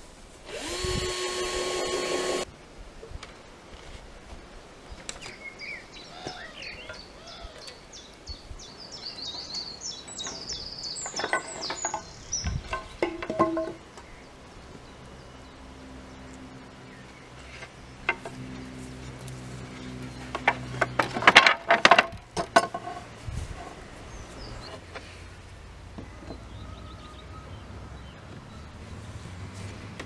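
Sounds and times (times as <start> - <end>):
wooden slats and pincers clicking: 10.2 - 13.8, 20.3 - 23.0.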